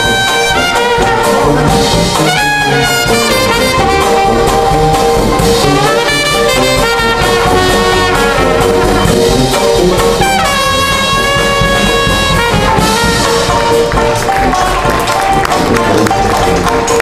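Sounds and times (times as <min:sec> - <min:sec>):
jazz band playing: 0:00.0 - 0:17.0
horn holding long note: 0:10.2 - 0:16.6.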